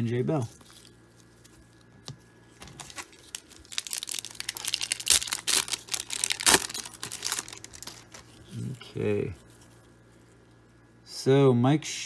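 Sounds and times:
foil wrapper tearing and crinkling: 2.6s - 8.6s.

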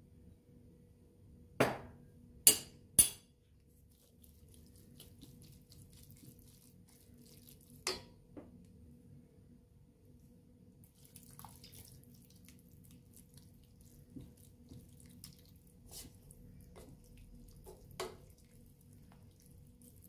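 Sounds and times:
spatula stirring in steel bowl: 3.0s - 8.2s, 10.9s - 20.0s
spoon and glass clinking: 7.8s - 8.1s.

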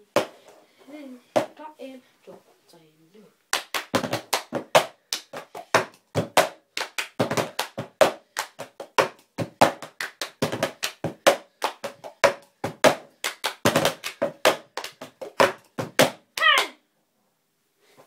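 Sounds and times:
hand claps: 3.5s - 16.7s.

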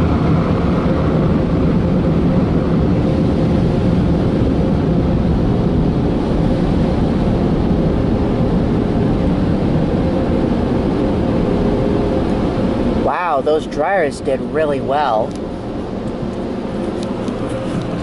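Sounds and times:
air-blower dryers rushing: 0.0s - 18.0s.

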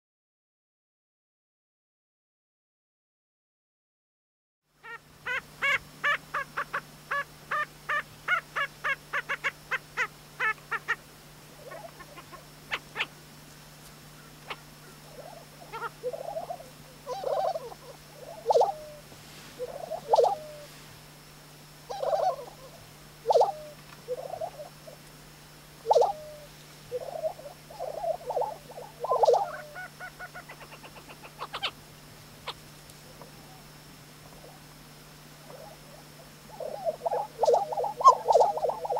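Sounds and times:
birds calling rapid notes: 21.9s - 24.7s, 25.9s - 31.8s.

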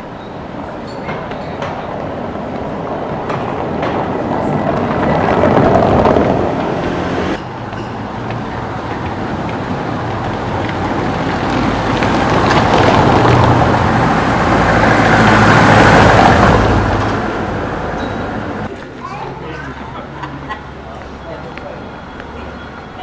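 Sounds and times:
car engine hum: 4.2s - 7.4s
tyres rumbling over cobbles: 8.8s - 17.2s.

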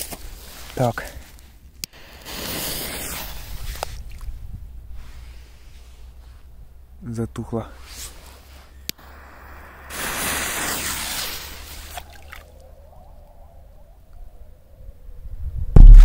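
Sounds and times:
rushing noise: 9.0s - 12.4s
water splashing: 9.8s - 12.8s.

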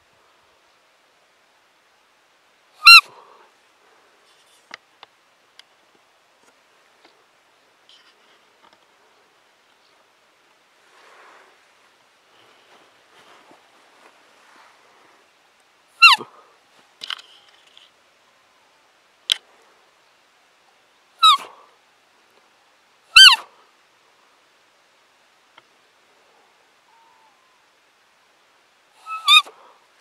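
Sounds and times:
high squeaks falling in pitch: 16.0s - 16.2s, 29.0s - 29.5s.

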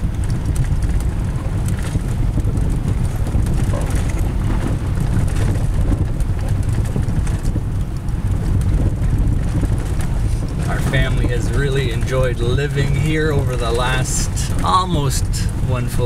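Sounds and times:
car engine and tyres rumbling: 0.0s - 16.0s.

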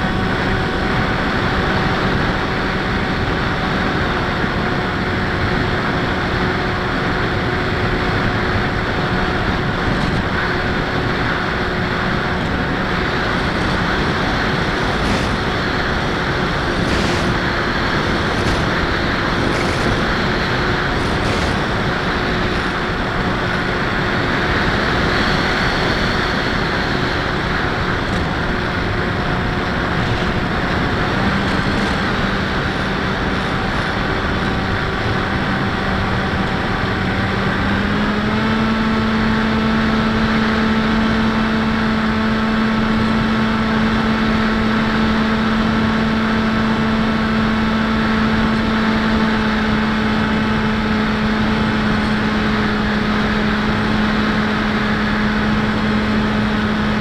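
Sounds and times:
electric motor whine: 0.0s - 57.0s
wind rushing: 9.7s - 35.2s.

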